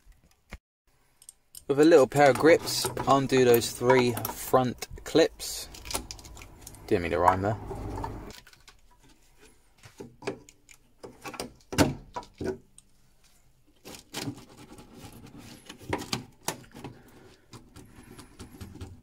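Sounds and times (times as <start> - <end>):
metal grips clicking on plastic: 1.2 - 7.5.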